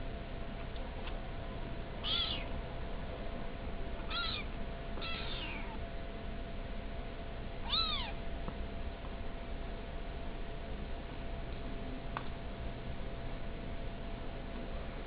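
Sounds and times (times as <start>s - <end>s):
kitten mewing: 2.0s - 2.5s, 4.1s - 5.8s, 7.6s - 8.2s.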